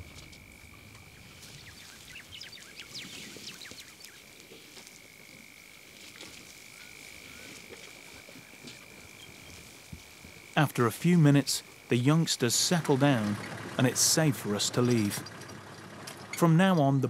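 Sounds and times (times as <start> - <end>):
bird chirps: 0.8 - 4.3.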